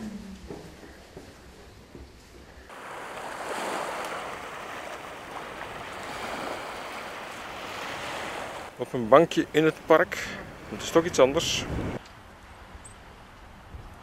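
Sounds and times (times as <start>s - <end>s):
small waves washing onto pebbles: 2.7s - 8.8s.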